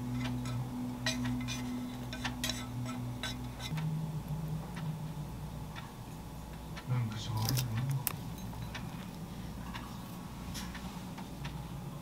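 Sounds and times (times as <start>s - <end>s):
low hum: 0.0s - 12.0s
chopsticks tapping ceramic bowl: 0.2s - 3.8s.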